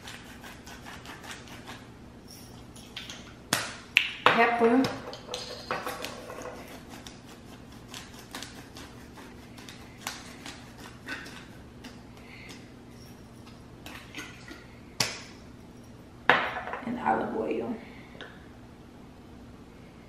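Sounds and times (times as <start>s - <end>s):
spice grinder crunching: 6.0s - 12.0s.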